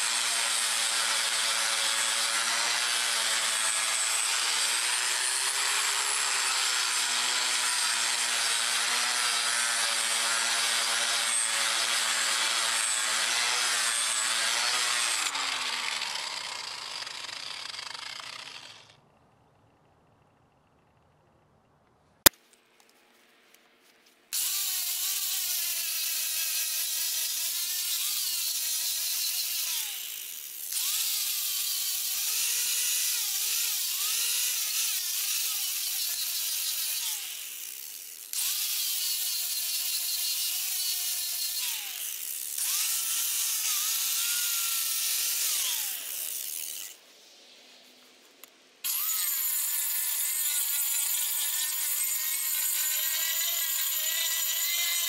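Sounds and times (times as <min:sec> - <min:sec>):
angle grinder sanding wood: 0:24.4 - 0:47.0, 0:48.9 - 0:55.0
second angle grinder high whine: 0:33.0 - 0:47.0, 0:48.9 - 0:55.0.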